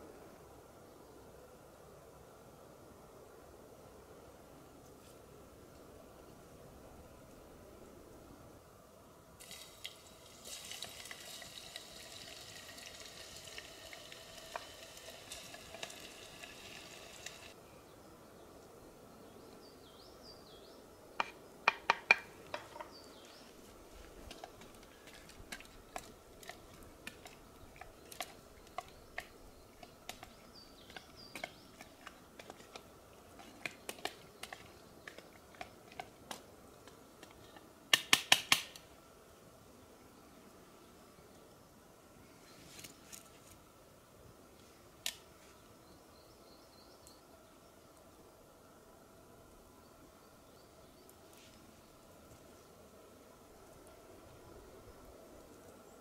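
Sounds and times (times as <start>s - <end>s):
sizzling hiss: 9.4s - 17.6s.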